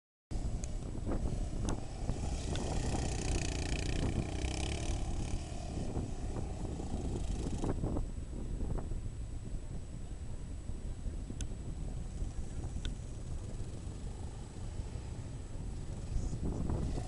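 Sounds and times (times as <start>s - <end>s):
wind noise on microphone: 0.3s - 17.0s
quad engine revving: 0.4s - 7.8s, 13.2s - 17.0s.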